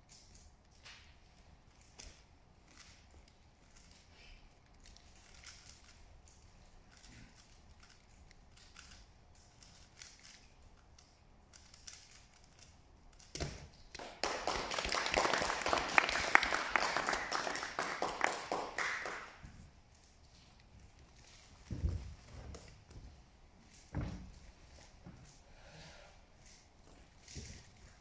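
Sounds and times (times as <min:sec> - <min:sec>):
applause: 0:13.9 - 0:19.4.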